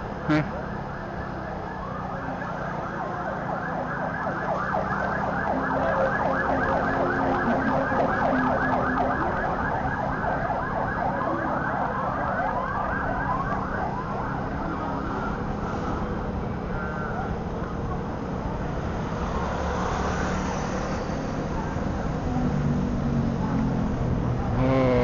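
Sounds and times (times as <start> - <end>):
siren yelping: 1.8 - 15.5.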